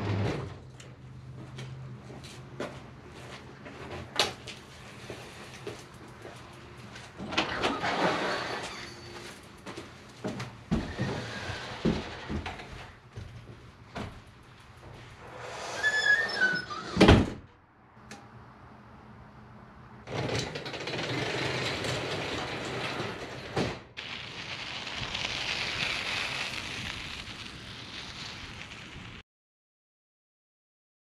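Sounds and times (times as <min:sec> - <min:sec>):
door squeaking: 0:07.2 - 0:09.4, 0:15.3 - 0:17.5
door closing with bang: 0:16.4 - 0:17.5
steady rushing noise: 0:24.0 - 0:29.2.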